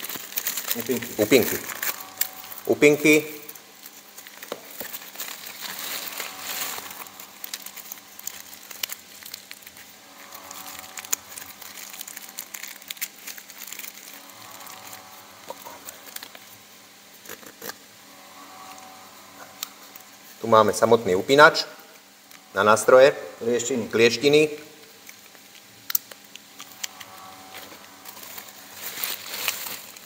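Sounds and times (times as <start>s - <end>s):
plastic packaging crinkling: 0.0s - 16.6s, 24.4s - 30.0s.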